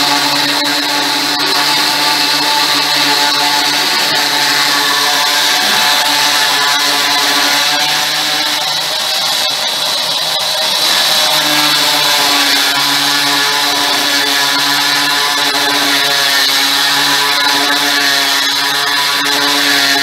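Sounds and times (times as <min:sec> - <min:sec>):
electric drill cutting stone: 0:00.0 - 0:20.0.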